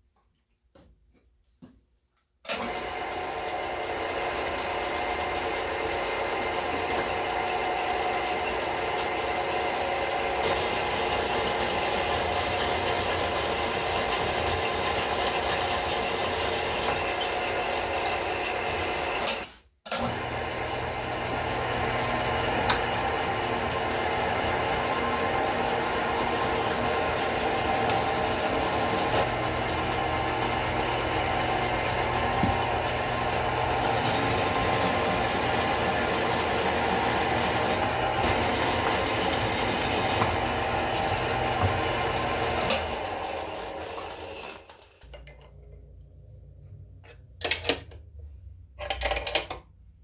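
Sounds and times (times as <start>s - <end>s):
drill press boring into steel: 10.4s - 20.1s, 30.2s - 44.9s.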